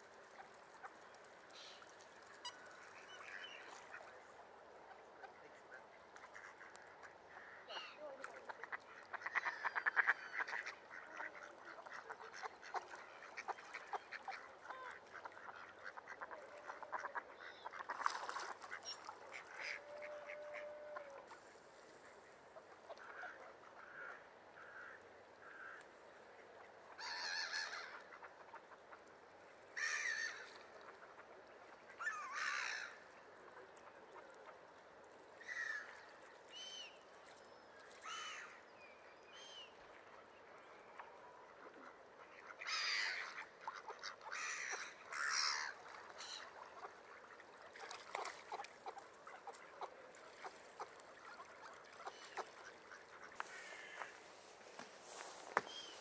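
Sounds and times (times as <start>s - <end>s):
ducks quacking: 5.2s - 21.2s, 41.7s - 54.5s.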